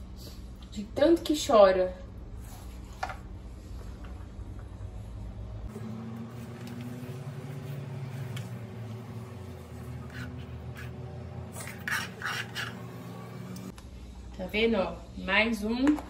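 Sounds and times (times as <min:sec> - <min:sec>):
knife scraping cutting board: 0:09.7 - 0:13.1.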